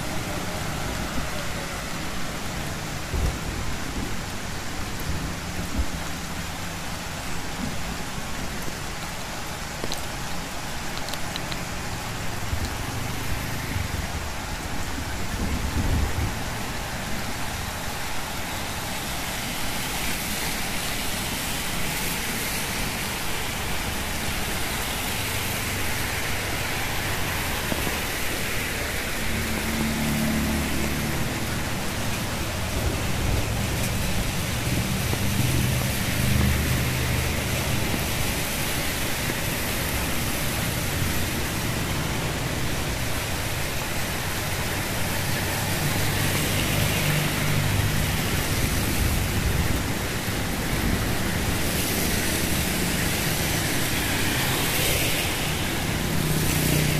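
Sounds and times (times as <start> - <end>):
rain on a wet street: 0.0 - 56.9
vehicles driving past on wet road: 0.0 - 56.9.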